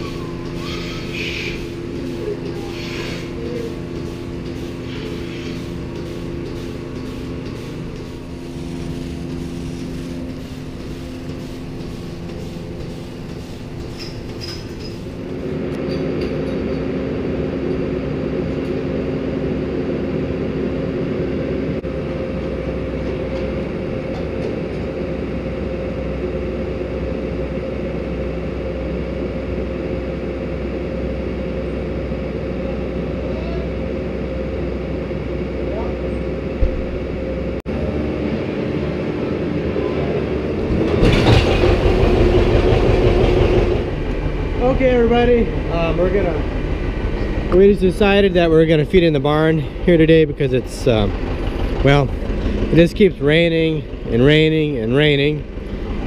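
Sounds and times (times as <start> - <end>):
tractor engine running: 0.0 - 15.8, 40.3 - 56.0
machine hum with held tones: 0.0 - 56.0.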